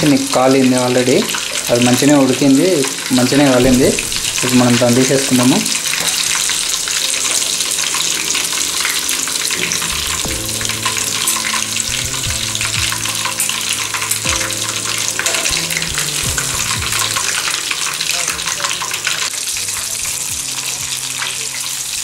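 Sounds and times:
oil bubbling and sizzling: 0:00.0 - 0:22.0
strainer knocking against pan: 0:09.6 - 0:19.1.

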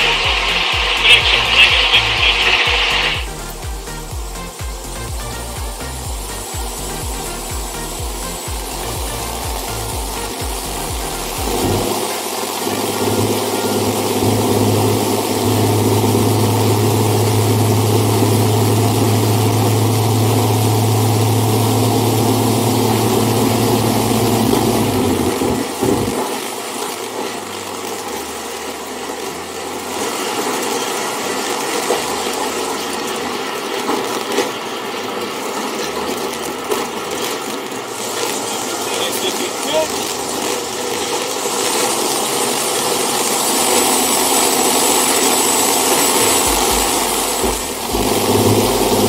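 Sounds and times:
aircraft engine and propeller drone: 0:00.0 - 0:49.0.

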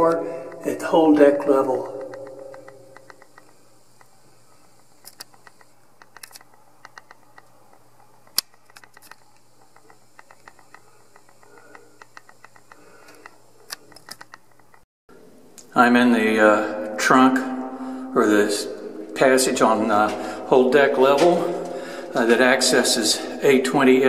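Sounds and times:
camera clicks and ticks: 0:01.9 - 0:04.1, 0:04.9 - 0:07.5.

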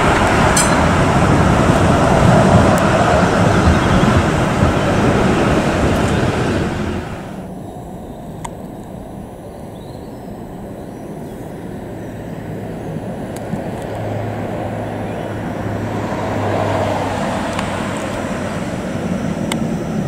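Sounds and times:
distant road traffic hum: 0:00.0 - 0:20.0
distant tram: 0:00.0 - 0:20.0
tram wheels rumbling on rails: 0:00.0 - 0:20.0.

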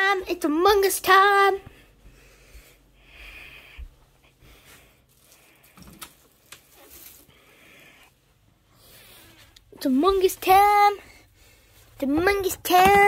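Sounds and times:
hands rustling plush toy: 0:03.8 - 0:07.4, 0:09.2 - 0:13.0.

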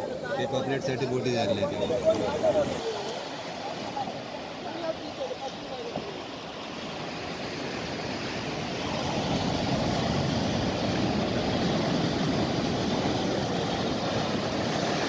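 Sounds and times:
surf breaking on beach: 0:00.0 - 0:15.0.

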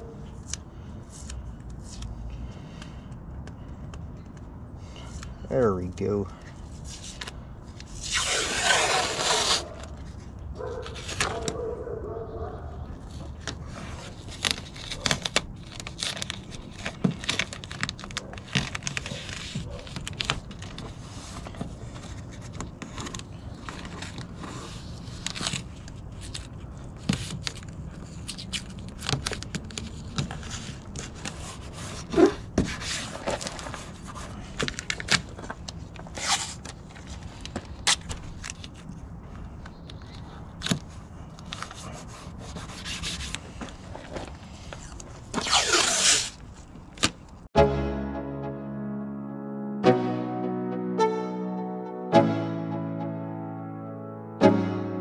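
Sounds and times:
tape rubbing: 0:06.7 - 0:11.6, 0:44.7 - 0:46.5
tape peeling and ripping: 0:06.8 - 0:10.2, 0:13.5 - 0:21.0, 0:44.8 - 0:46.4.

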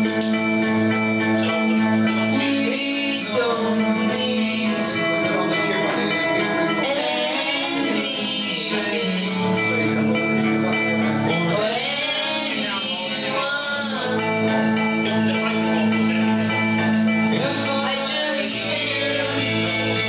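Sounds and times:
guitar-backed music: 0:00.0 - 0:20.0
boy singing into a microphone: 0:02.3 - 0:10.2, 0:11.0 - 0:15.8, 0:17.3 - 0:20.0.

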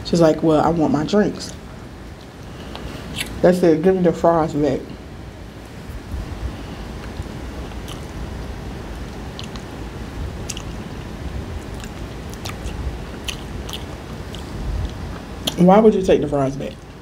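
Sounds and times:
chewing crispy fish: 0:06.9 - 0:15.6.

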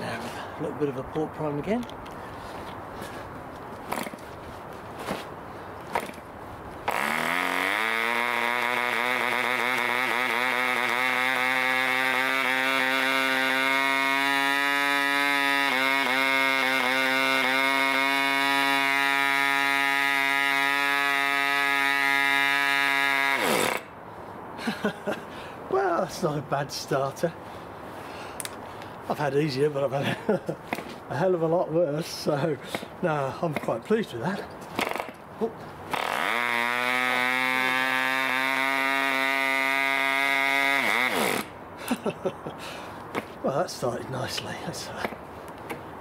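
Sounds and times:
model engine running at high revs: 0:06.9 - 0:23.9, 0:36.1 - 0:41.5.

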